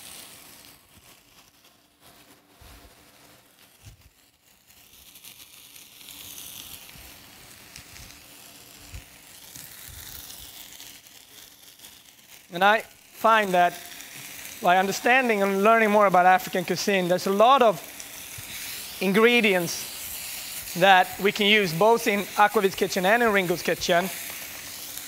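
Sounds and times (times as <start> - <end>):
food sizzling in a pan: 0.0 - 25.0.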